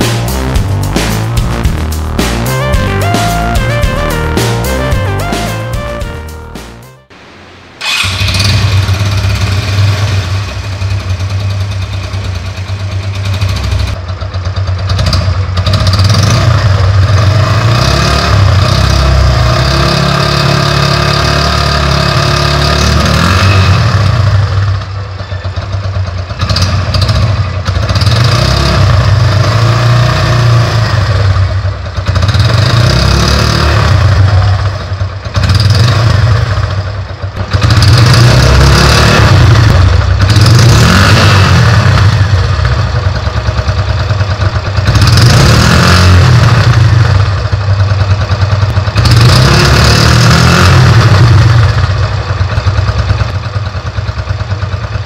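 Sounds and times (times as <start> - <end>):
motorcycle engine revving: 7.8 - 55.0.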